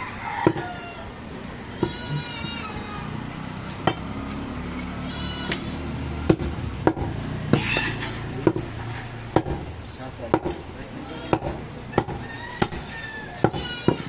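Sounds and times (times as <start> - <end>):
rooster crowing: 0.0 - 1.3, 11.9 - 14.0
knife chopping meat on wood: 6.2 - 10.6, 11.3 - 14.0.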